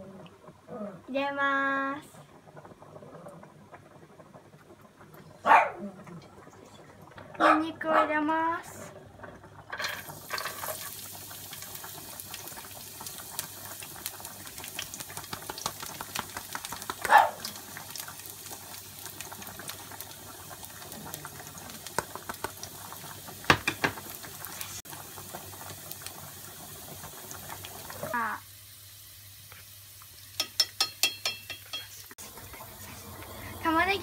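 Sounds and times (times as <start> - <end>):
pot of water boiling: 0.0 - 34.0
garlic sizzling in oil: 9.4 - 34.0.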